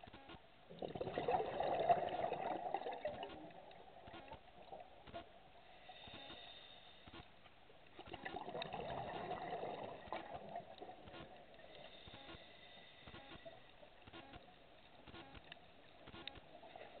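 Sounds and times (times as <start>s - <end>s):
faint clicks: 0.0s - 0.4s, 3.0s - 5.4s, 6.0s - 8.4s, 10.1s - 17.0s
rush of exhaled bubbles: 0.7s - 4.0s, 8.0s - 11.1s
diver regulator breathing underwater: 5.6s - 7.2s, 11.6s - 13.5s.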